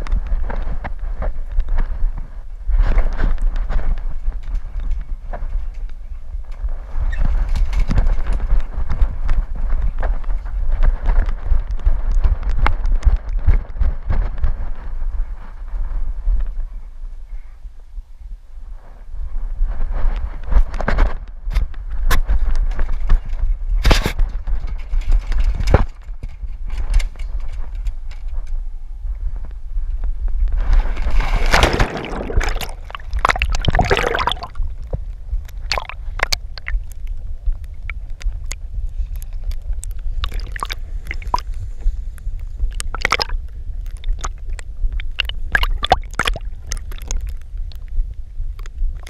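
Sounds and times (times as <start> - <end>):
steady low rumble: 28.1 - 49.0
pool water splashing: 31.3 - 34.6, 45.0 - 47.2
water lapping: 31.3 - 34.6.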